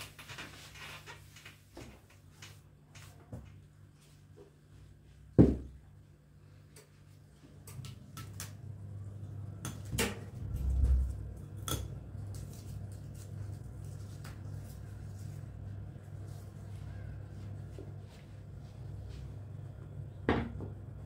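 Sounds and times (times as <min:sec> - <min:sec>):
low hum: 0:07.4 - 0:21.0.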